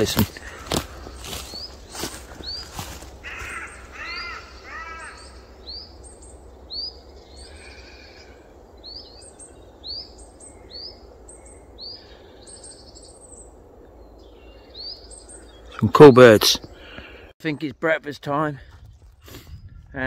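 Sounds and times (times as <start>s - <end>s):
songbird high call: 0.0s - 16.4s
crow cawing: 0.3s - 5.6s.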